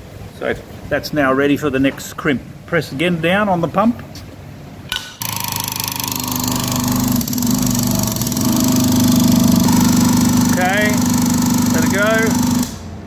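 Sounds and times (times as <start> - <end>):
hydraulic pump pulsing: 4.9 - 13.0.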